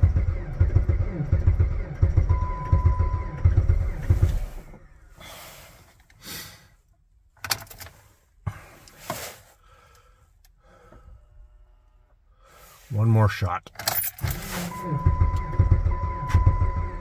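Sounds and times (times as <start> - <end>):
car engine cranking slowly: 0.0 - 6.2, 13.8 - 17.0.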